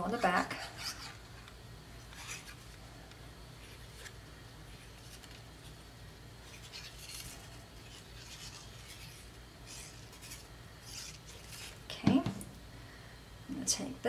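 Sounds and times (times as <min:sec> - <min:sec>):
steady low hum: 0:00.0 - 0:14.0
paper rustling: 0:03.6 - 0:05.8, 0:06.4 - 0:11.9.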